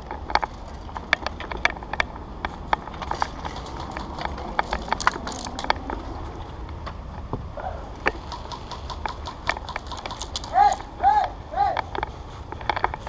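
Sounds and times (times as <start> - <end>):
airsoft guns popping: 2.8 - 6.1, 8.0 - 11.0.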